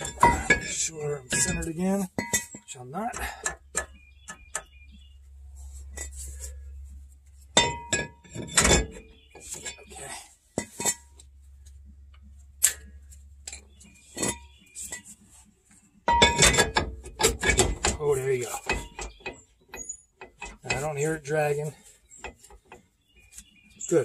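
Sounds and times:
loud metal clanking: 0:00.0 - 0:03.4
metal clinks and knocks: 0:00.0 - 0:04.8, 0:07.4 - 0:15.2, 0:16.0 - 0:23.9.

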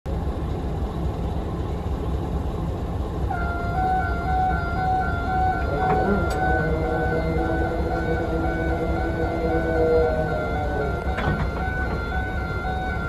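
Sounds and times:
diesel locomotive engine drone: 0:00.1 - 0:13.0
background music pulsing notes: 0:03.4 - 0:13.0.

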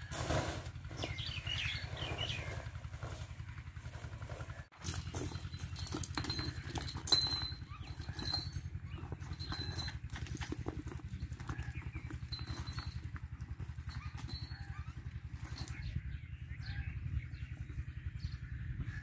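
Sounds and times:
knocks and clatter at trough: 0:04.8 - 0:14.7.

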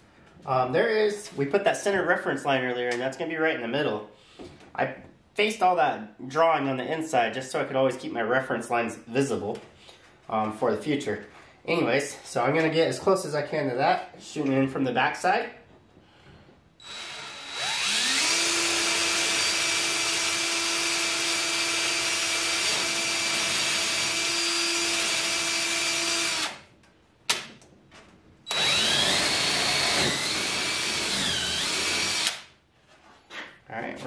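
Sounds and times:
cordless drill whining: 0:16.8 - 0:26.6, 0:28.5 - 0:32.4
drill click: 0:16.8 - 0:26.6, 0:28.5 - 0:32.5.

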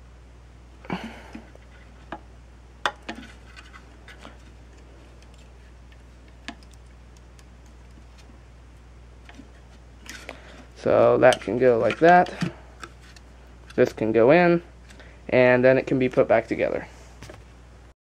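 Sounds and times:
steady low hum: 0:00.0 - 0:18.0
connectors clicking onto terminals: 0:06.3 - 0:08.0.

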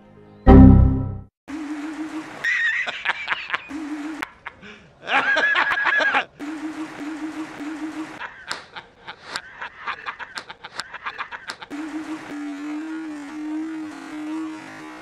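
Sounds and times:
man laughing loudly: 0:01.8 - 0:12.3.

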